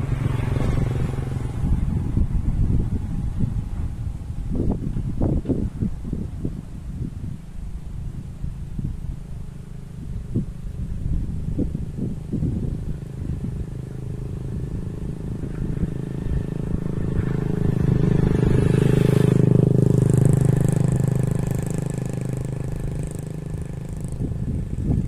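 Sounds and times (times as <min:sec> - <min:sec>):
motorcycle passing: 0:00.0 - 0:25.0.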